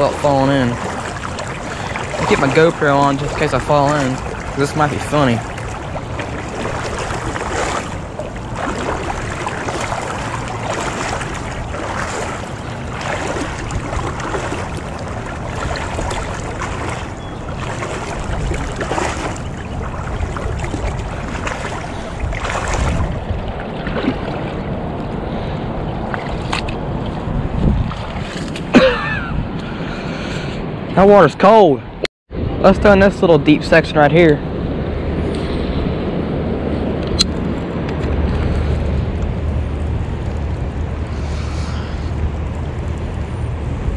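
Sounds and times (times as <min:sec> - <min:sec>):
water sloshing around wading legs: 0:00.0 - 0:29.3
wind on microphone: 0:00.0 - 0:31.0, 0:32.3 - 0:43.9.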